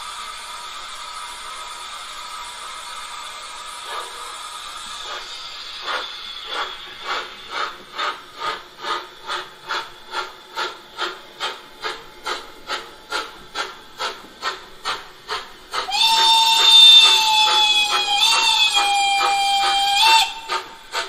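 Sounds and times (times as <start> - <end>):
steam exhaust chuffs: 0.0 - 21.0
steam whistle: 15.8 - 20.9.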